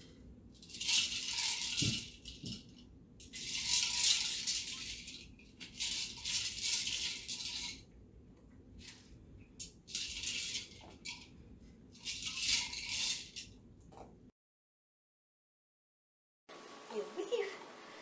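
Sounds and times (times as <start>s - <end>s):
toy ball rattling on carpet: 0.6s - 7.8s.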